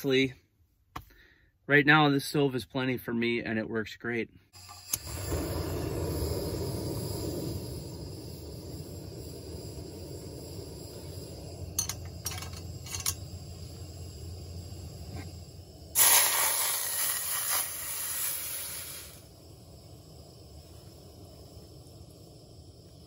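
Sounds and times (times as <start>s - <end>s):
soup sizzling in hot pot: 4.6s - 23.0s
steady low rumble: 5.0s - 16.0s, 18.0s - 23.0s.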